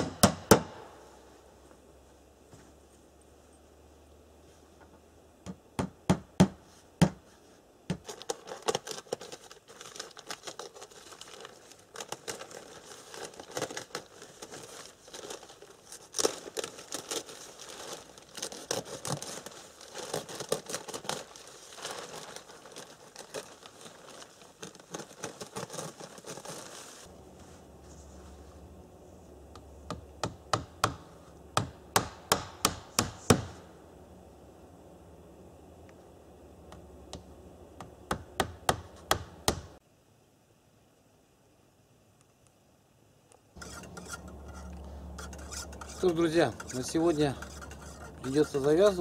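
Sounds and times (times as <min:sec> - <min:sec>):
plastic sheeting crinkling: 0:08.0 - 0:29.2.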